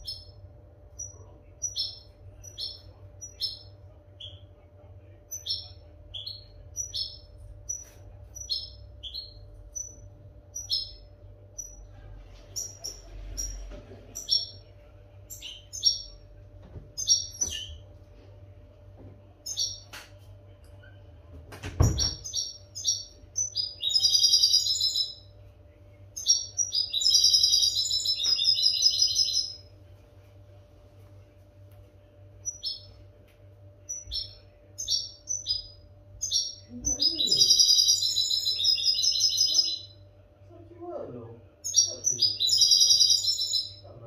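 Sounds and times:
faint steady hum: 0.0 - 44.0.

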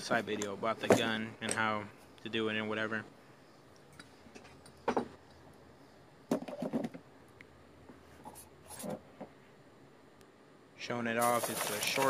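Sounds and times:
handling knocks and rustles: 11.2 - 12.0.

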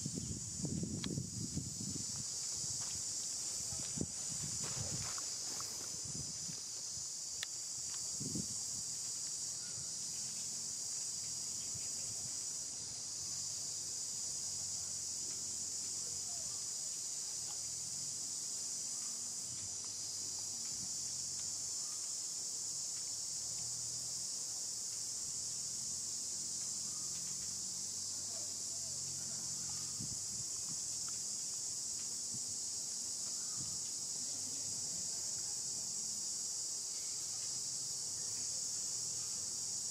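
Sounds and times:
insects buzzing: 0.0 - 39.9.

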